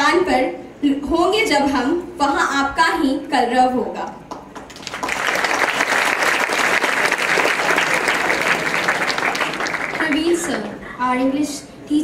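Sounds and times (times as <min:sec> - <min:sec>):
audience applauding: 0:04.5 - 0:10.7.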